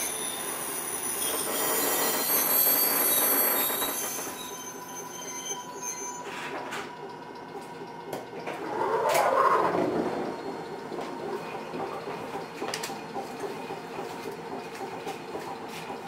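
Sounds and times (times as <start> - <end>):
steel wheels squealing on rails: 0.0 - 12.4
train rumble with faint tone: 6.2 - 16.0.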